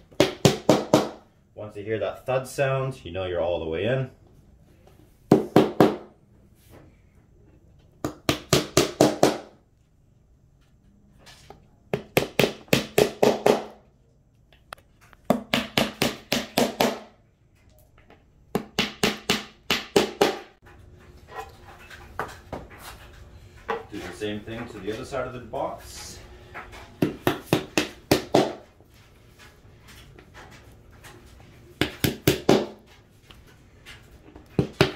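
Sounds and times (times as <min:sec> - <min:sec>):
hammer tapping wooden panel: 0:00.1 - 0:01.2, 0:08.0 - 0:09.5, 0:12.0 - 0:13.8, 0:15.3 - 0:17.1, 0:18.5 - 0:20.5, 0:27.0 - 0:28.6, 0:31.8 - 0:32.8.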